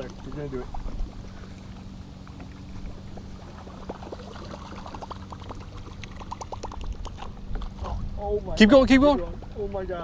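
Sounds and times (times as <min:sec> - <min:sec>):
water splashing: 0:00.0 - 0:08.1
steady low hum: 0:00.0 - 0:10.0.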